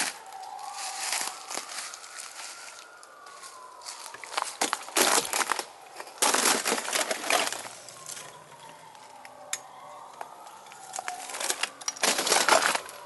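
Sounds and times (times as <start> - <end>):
footsteps on dry leaves: 0.0 - 8.3
distant siren: 0.0 - 13.0.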